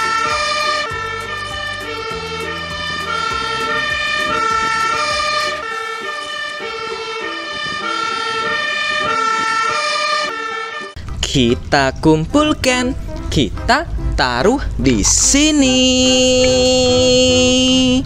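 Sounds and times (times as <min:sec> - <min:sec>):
two-tone siren: 0:00.0 - 0:11.0
truck engine running: 0:00.0 - 0:18.0.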